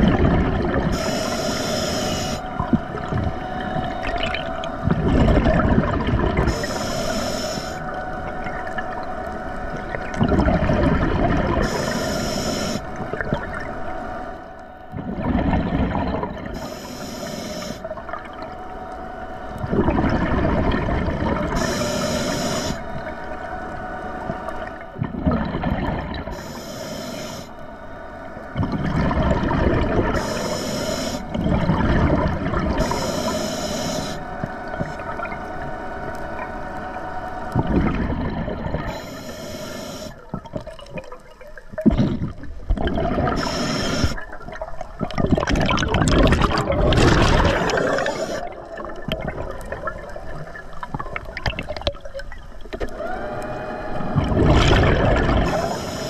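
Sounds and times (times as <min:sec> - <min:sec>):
exhaled bubbles rumbling: 0:00.0 - 0:01.3, 0:02.2 - 0:06.8, 0:07.7 - 0:12.0, 0:12.9 - 0:14.1, 0:14.9 - 0:16.7, 0:19.5 - 0:21.9, 0:22.5 - 0:26.5, 0:28.4 - 0:30.6, 0:31.2 - 0:33.2, 0:34.4 - 0:39.1, 0:40.1 - 0:56.0
steady hum: 0:00.0 - 0:51.6, 0:52.4 - 0:56.0
regulator inhalation hiss: 0:00.9 - 0:02.5, 0:06.5 - 0:07.9, 0:11.6 - 0:12.9, 0:16.6 - 0:17.9, 0:21.5 - 0:22.9, 0:26.3 - 0:27.6, 0:30.1 - 0:31.4, 0:32.8 - 0:34.3, 0:38.9 - 0:40.2, 0:43.3 - 0:44.2, 0:47.6 - 0:48.5, 0:55.4 - 0:56.0.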